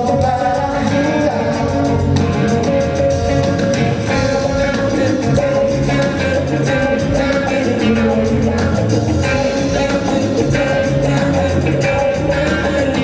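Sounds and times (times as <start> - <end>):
rock band playing live: 0.0 - 13.0.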